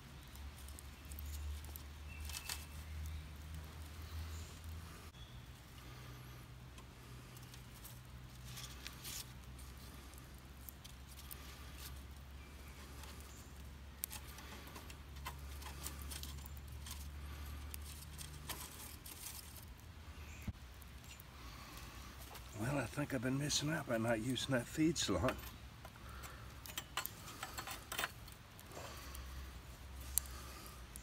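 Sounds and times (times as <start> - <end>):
wood sticks clicking and scraping: 0.0 - 31.0.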